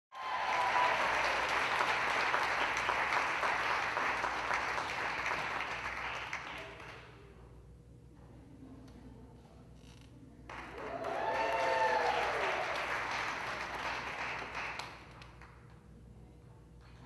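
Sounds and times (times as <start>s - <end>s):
audience applauding: 0.1s - 7.1s, 10.5s - 15.5s.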